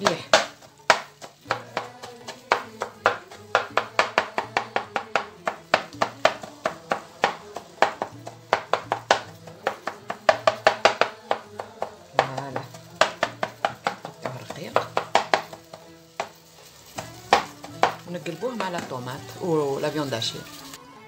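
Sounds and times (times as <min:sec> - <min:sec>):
knife chopping on cutting board: 0:00.0 - 0:16.4.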